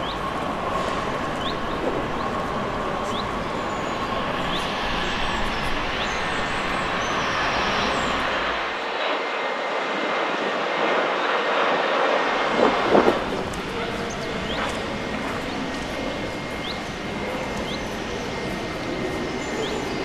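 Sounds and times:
small birds chirping: 0.0 - 0.4, 1.1 - 8.5, 13.9 - 20.0
jet engines running: 0.0 - 20.0.

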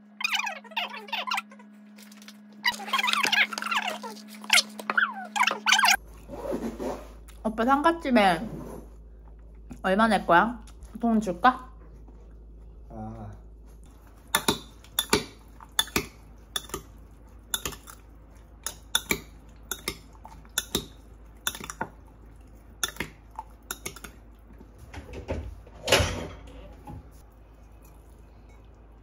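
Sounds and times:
cutlery clinking against a dish: 14.4 - 16.9, 18.6 - 20.9
cutlery scraping a dish: 14.4 - 16.9.

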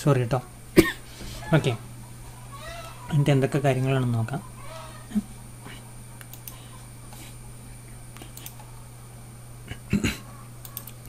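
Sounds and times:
low electrical hum: 0.0 - 11.0
faint computer clicks and taps: 6.2 - 7.3, 8.1 - 8.7, 10.6 - 11.0.

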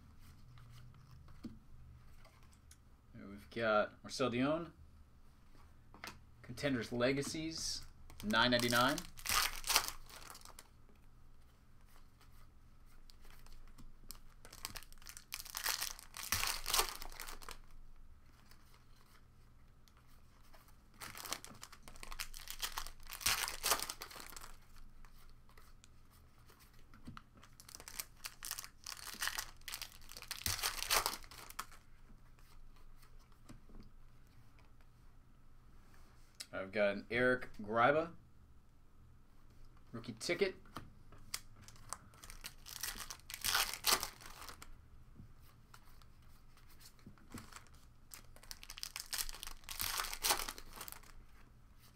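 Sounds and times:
foil crinkling: 8.2 - 10.7, 14.1 - 17.6, 21.0 - 24.6, 27.5 - 31.8, 41.7 - 44.6, 47.4 - 51.1
foil wrappers tearing and crinkling: 8.2 - 10.7, 14.1 - 17.6, 21.0 - 24.6, 27.6 - 31.7, 41.8 - 44.6, 47.5 - 51.1.

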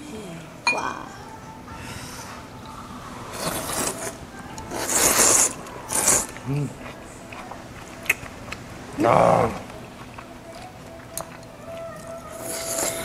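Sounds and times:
person humming: 0.0 - 6.9, 9.0 - 9.9, 11.4 - 13.0
noisy eating sounds: 0.5 - 13.0.

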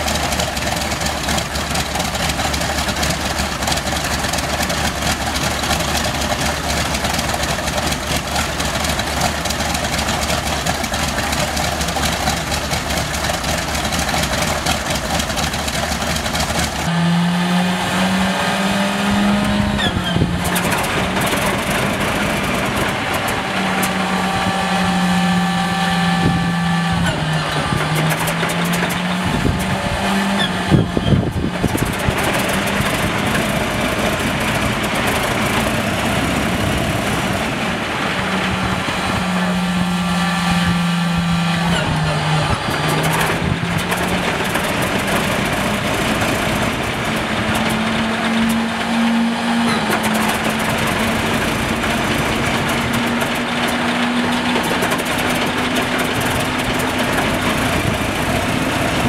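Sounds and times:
engine starter whining: 41.4 - 59.0.

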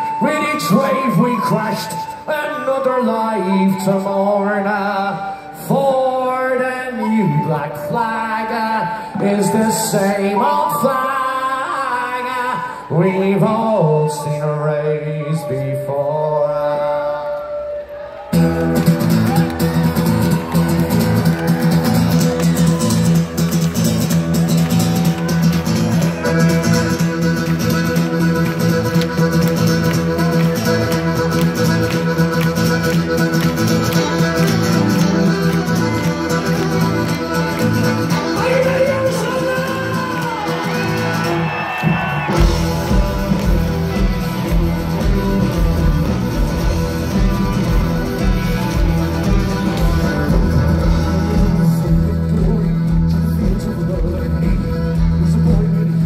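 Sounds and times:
drums: 18.3 - 56.0
live punk band playing: 18.3 - 56.0
accordion: 18.4 - 41.5, 42.3 - 56.0
fiddle: 19.2 - 41.4.

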